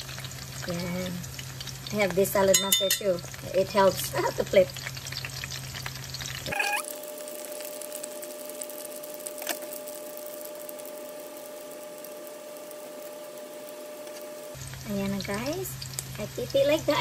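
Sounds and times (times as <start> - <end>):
fritters crackling in oil: 0.0 - 17.0
steady hum: 6.0 - 17.0.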